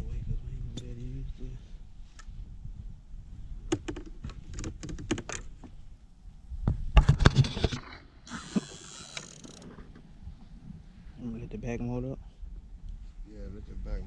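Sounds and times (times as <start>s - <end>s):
fishing reel clicking: 8.3s - 9.7s.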